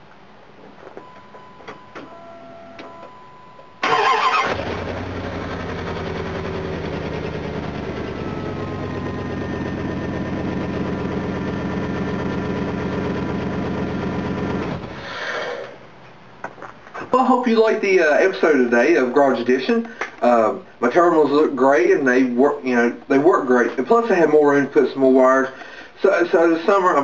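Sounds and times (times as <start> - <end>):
faint steady tone: 1.0 - 3.8
starter cranking engine: 3.8 - 8.1, 10.2 - 15.0
pickup engine idling: 4.4 - 15.0.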